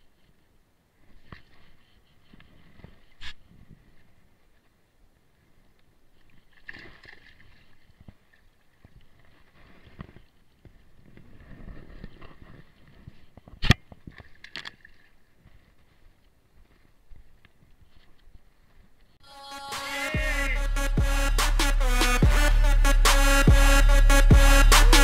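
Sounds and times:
water splashing and sloshing: 0:06.1 - 0:10.4, 0:11.6 - 0:15.8.

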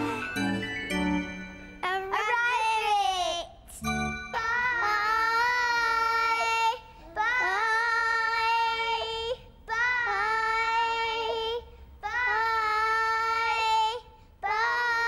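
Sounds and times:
children singing together: 0:04.4 - 0:15.0.

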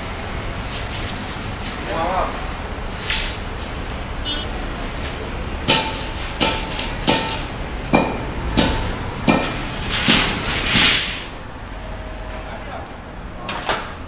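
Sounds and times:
steel striking rebar: 0:05.7 - 0:11.3.

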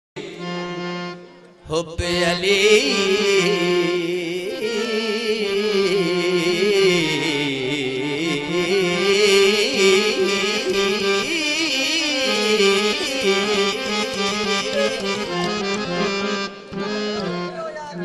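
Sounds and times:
folk song with gliding melody: 0:00.2 - 0:18.0.

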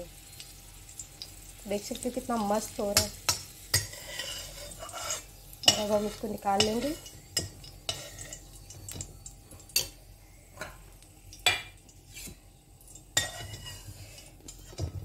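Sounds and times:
metal spatula scraping metal pan: 0:03.7 - 0:08.5, 0:13.2 - 0:15.0.

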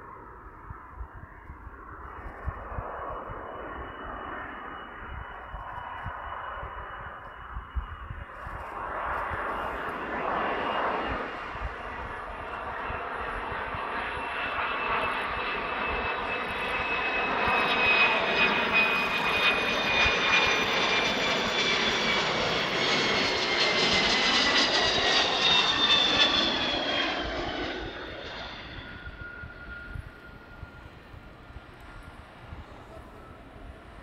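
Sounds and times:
jet aircraft landing approach: 0:00.0 - 0:34.0
jet engine whine: 0:00.0 - 0:34.0.

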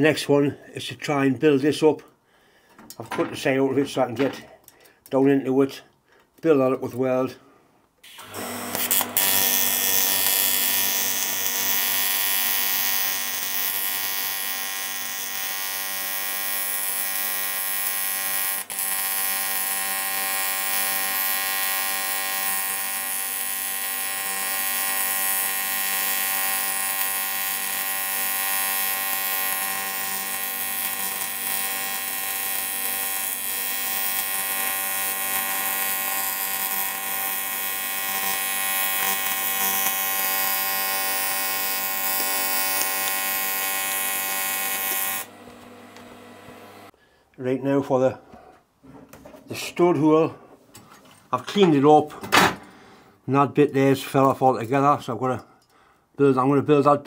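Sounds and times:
welding arc buzzing: 0:08.0 - 0:46.9.

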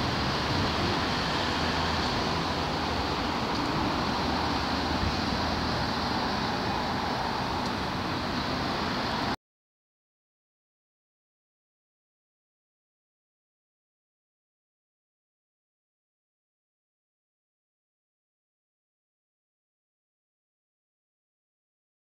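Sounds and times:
busy road traffic: 0:00.0 - 0:09.4.

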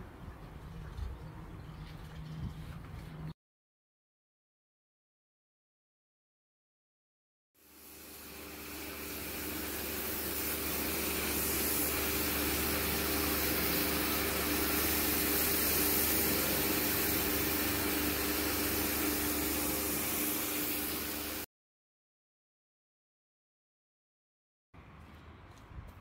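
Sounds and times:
pressure washer motor humming: 0:07.6 - 0:21.5
water jet hissing on paving: 0:07.6 - 0:21.5.

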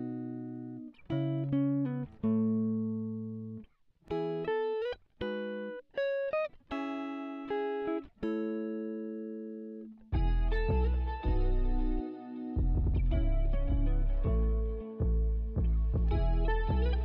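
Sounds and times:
plucked guitar-like melody: 0:00.0 - 0:17.0
deep bass music: 0:10.2 - 0:12.0, 0:12.6 - 0:17.0.

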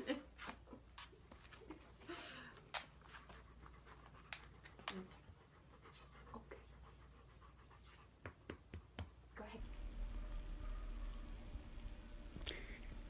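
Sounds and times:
dog panting: 0:02.6 - 0:09.0.

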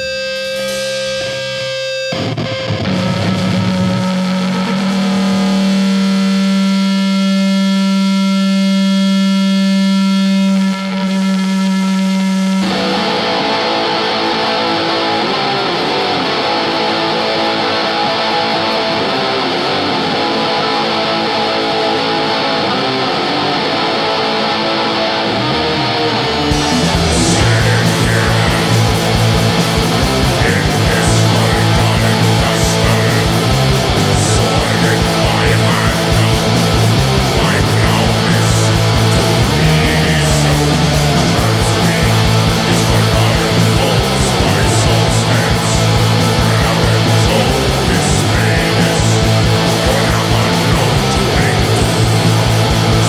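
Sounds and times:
doom metal band playing live: 0:00.0 - 0:53.0.

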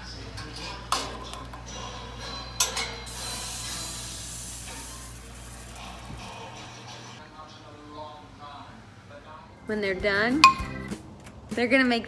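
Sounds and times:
steam hissing: 0:03.1 - 0:07.2.

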